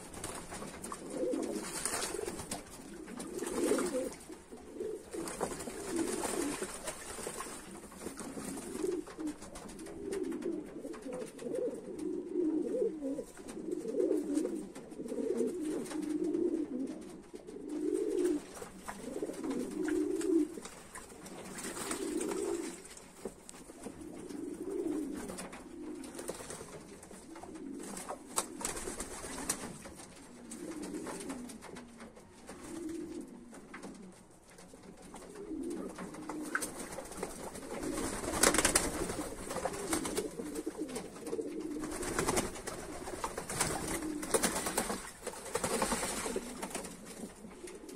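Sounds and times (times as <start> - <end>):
wings fluttering: 0.0 - 12.2, 17.0 - 47.9
pigeons cooing: 0.0 - 34.2, 35.0 - 47.9.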